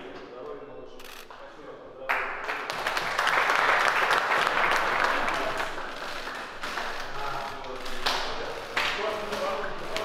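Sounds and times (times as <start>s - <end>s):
group of people applauding: 2.1s - 10.0s.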